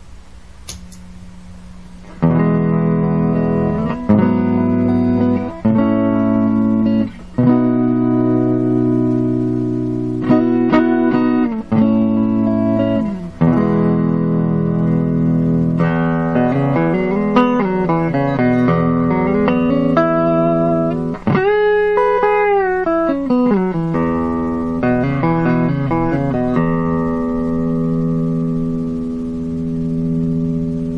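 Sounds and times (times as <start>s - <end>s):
electric guitar chords and notes: 2.0s - 30.9s.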